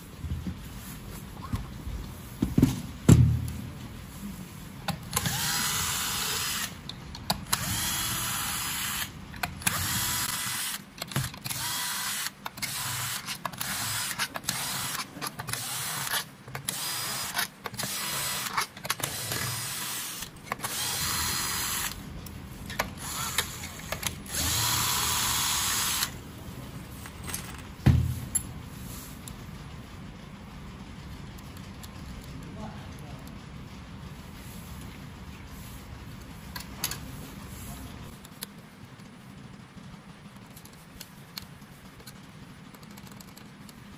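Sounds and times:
cordless drill motor whirring: 5.0 - 22.0, 22.8 - 26.2.

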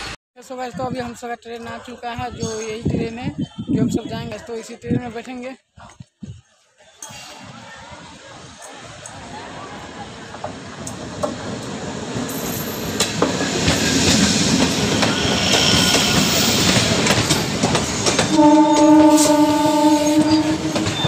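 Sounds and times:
train rumbling along platform: 7.4 - 21.0
train horn: 18.3 - 21.0.

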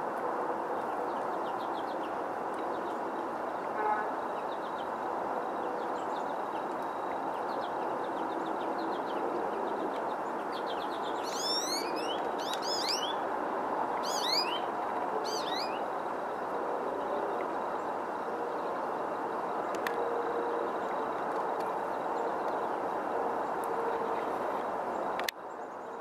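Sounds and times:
steady background noise: 0.0 - 26.0
songbird chirping: 5.7 - 13.3, 13.9 - 15.9.

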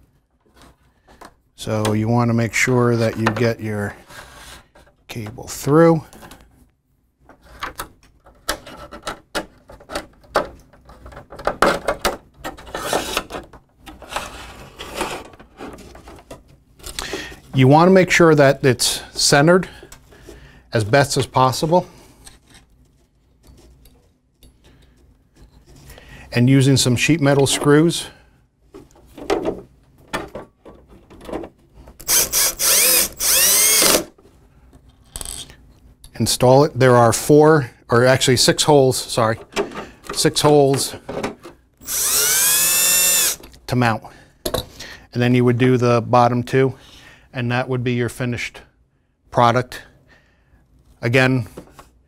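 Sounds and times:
drill bit clicks: 32.0 - 34.0, 41.8 - 43.4
cordless drill motor whining: 32.0 - 34.1, 41.8 - 43.4.

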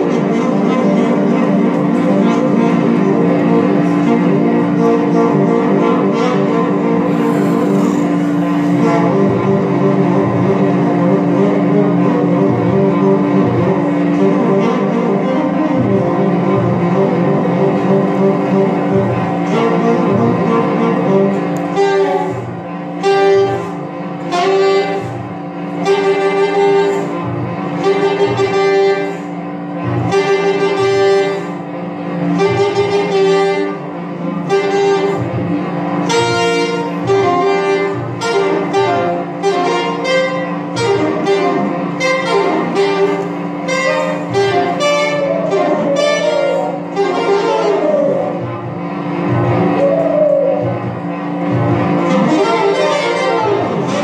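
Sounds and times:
bass line: 0.0 - 54.0
low drone: 0.0 - 54.0
repeated pulsing note: 0.0 - 54.0
saxophone playing jazz: 0.0 - 54.0.

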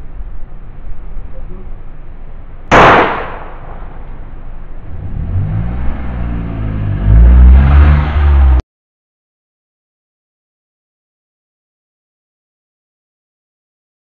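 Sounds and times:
loud sharp bang: 2.7 - 4.2
car passing by: 4.9 - 8.6.

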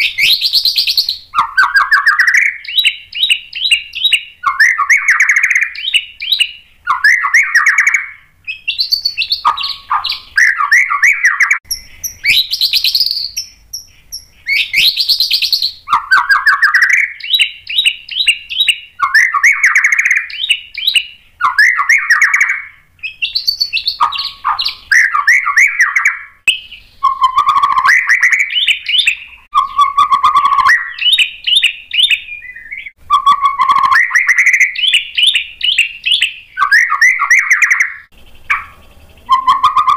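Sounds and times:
bird singing whistled notes: 0.0 - 39.9.

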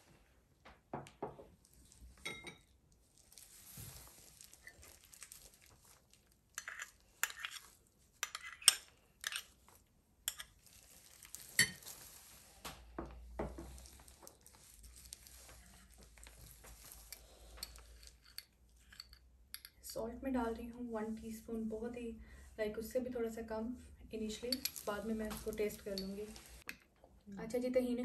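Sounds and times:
metal spoon clinking on ceramic bowl: 2.3 - 2.6, 18.2 - 19.8.

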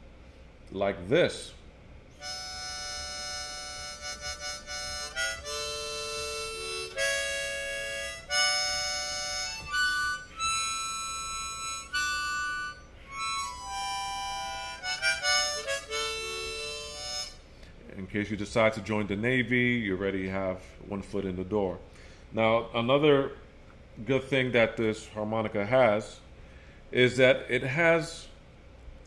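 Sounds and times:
harmonica chords: 2.1 - 18.7.

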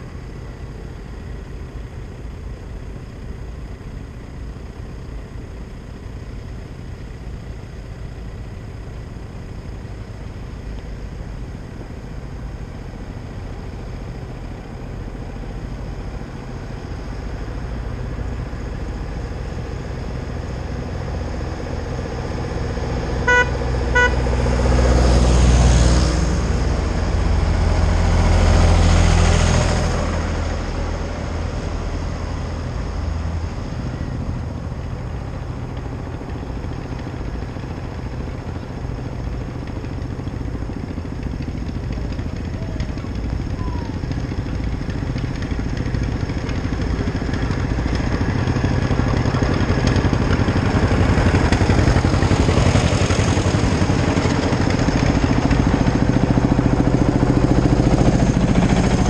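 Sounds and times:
tractor engines rumbling: 0.0 - 59.0
horn tooting: 23.2 - 24.4.

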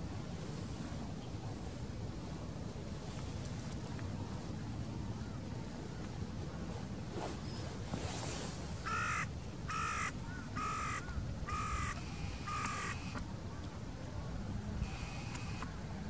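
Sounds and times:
bird harsh calls: 8.8 - 13.2.

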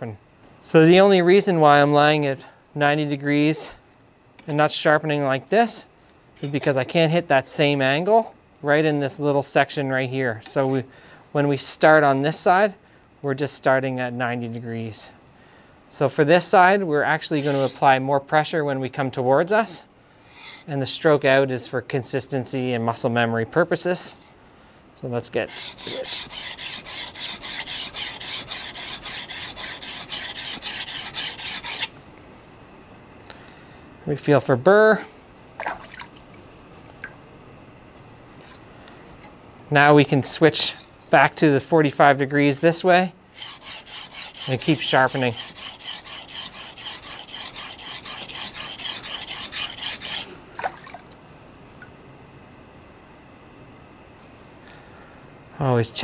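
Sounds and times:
knife scraping on whetstone: 17.3 - 17.8, 20.2 - 20.7, 25.4 - 31.9, 43.4 - 50.3.

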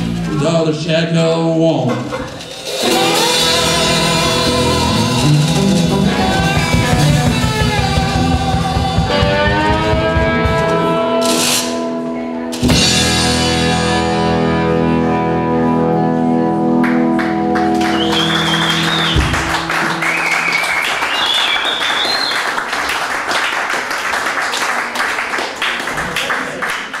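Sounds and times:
electric guitar chord ringing: 2.6 - 20.6
audience clapping and whistling: 16.8 - 27.0.

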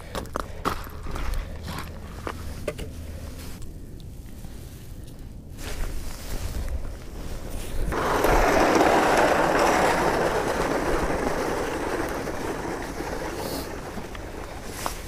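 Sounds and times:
ice auger grinding through ice: 7.7 - 15.0.

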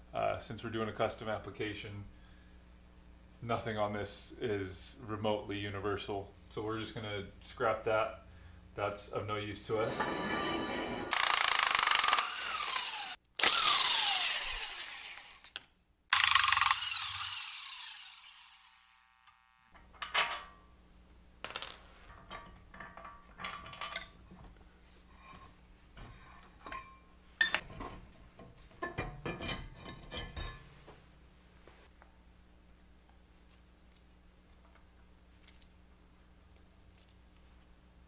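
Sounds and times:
steel parts clanging and ringing: 9.8 - 11.1, 26.6 - 27.6.

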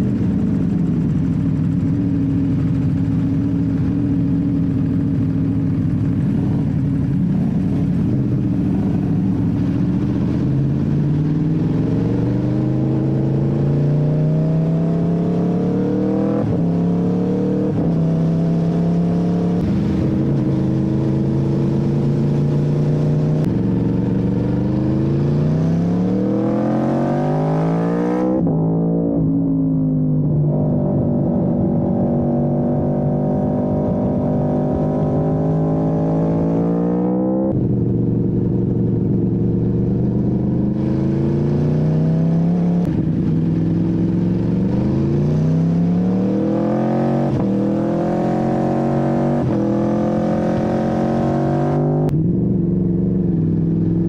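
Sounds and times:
motorcycle engine accelerating: 0.0 - 54.0.

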